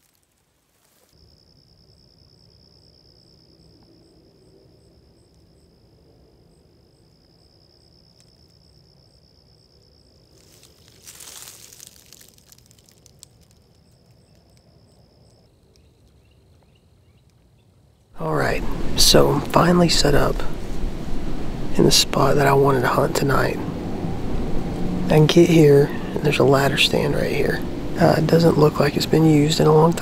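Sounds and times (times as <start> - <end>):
high-pitched insect trill: 0.1 - 17.2.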